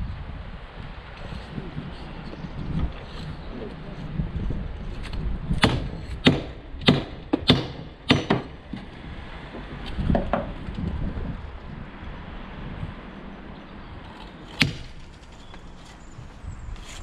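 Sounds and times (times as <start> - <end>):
hammer striking stone: 5.6 - 8.6.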